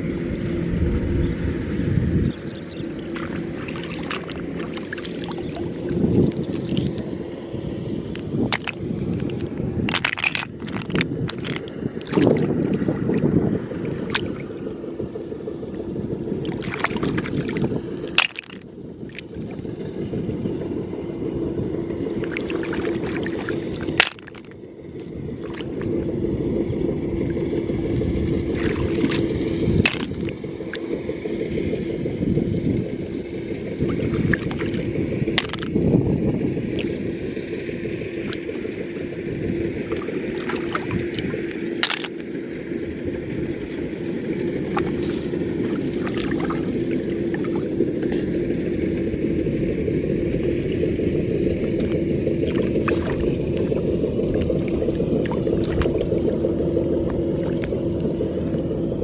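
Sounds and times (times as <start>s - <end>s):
steady low hum: 0.0s - 59.0s
water sloshing: 2.6s - 20.6s, 21.7s - 59.0s
snail shells clacking together: 8.5s - 11.7s, 18.0s - 18.6s, 23.6s - 24.5s, 29.9s - 30.4s, 35.4s - 35.7s, 41.1s - 42.2s.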